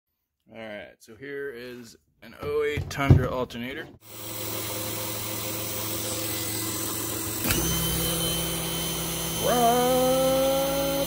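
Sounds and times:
electric motor hum and whine: 4.0 - 11.0.

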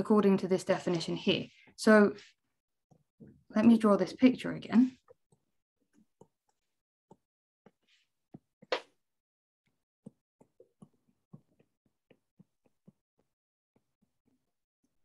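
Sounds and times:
stylus tapping on tablet screen: 4.9 - 8.9, 9.7 - 15.0.

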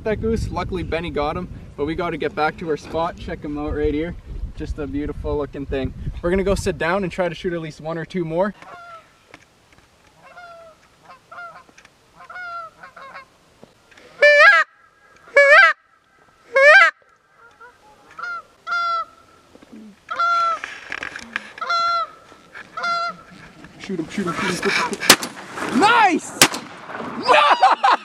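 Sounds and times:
goose call honks: 14.2 - 14.7, 15.3 - 15.8, 16.5 - 19.2, 21.6 - 23.3.

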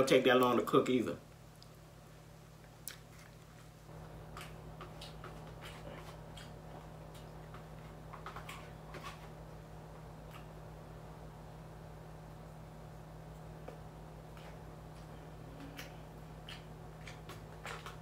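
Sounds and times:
low steady hum: 0.0 - 18.0
chewing: 2.7 - 9.4, 10.2 - 10.6, 13.4 - 18.0.

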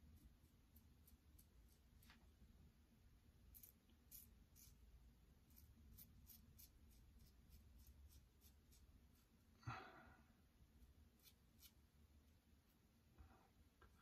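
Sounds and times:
razor scraping stubble: 3.5 - 4.8, 5.5 - 9.2.

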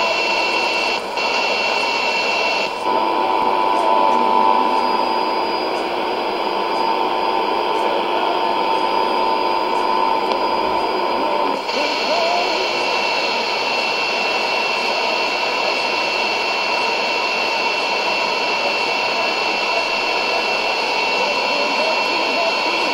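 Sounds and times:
radio static hiss: 0.0 - 22.9
radio whistle tone: 0.0 - 22.9.

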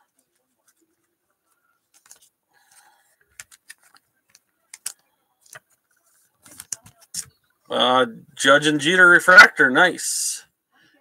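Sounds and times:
trading cards rustling: 0.1 - 7.4
card sliding into plastic sleeve: 1.9 - 4.0
sharp plastic clicks: 2.8 - 5.8.

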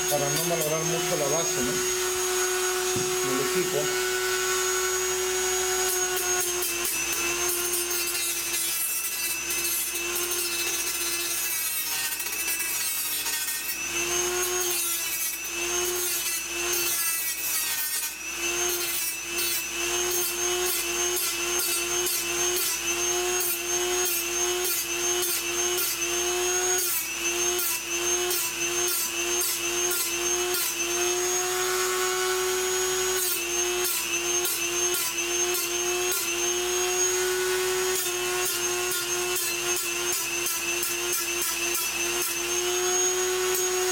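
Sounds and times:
rotary tool grinding metal: 0.0 - 43.9.

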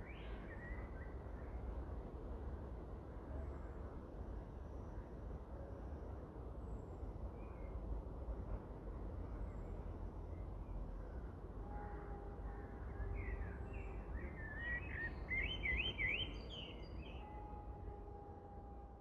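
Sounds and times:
songbird chirping: 13.3 - 17.2.

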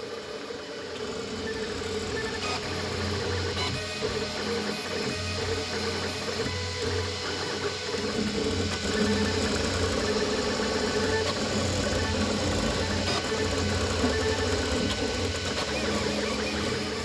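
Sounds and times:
stepper motors whining: 0.5 - 17.0.

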